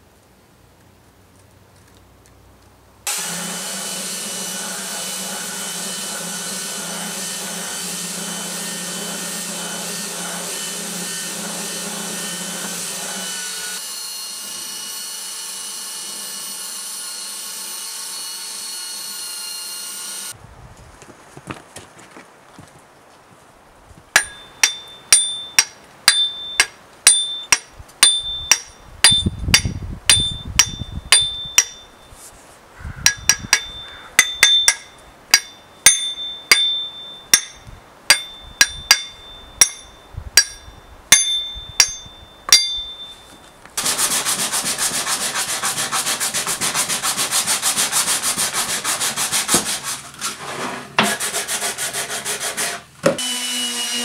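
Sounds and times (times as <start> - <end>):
electric power sander running: 3.1 - 16.6
metallic blows on axe head: 24.2 - 32.1, 33.0 - 43.3.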